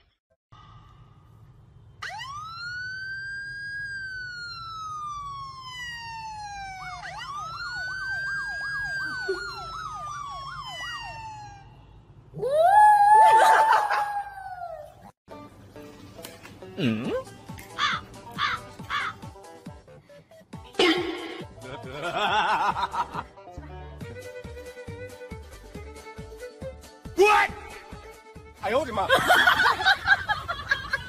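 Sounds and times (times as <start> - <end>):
siren wail and yelp: 2.0 - 14.9.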